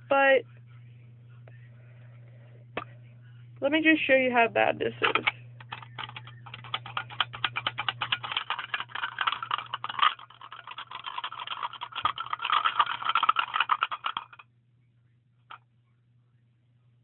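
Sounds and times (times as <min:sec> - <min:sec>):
magnets rattling in metal tin: 0:05.0 - 0:14.4.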